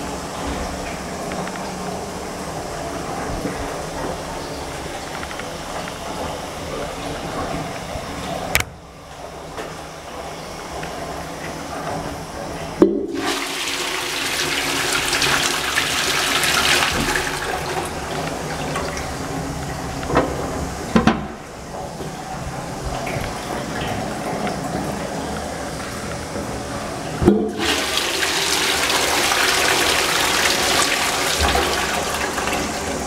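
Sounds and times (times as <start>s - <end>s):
water rushing into toilet pan: 12.8s - 19.4s, 27.2s - 33.0s.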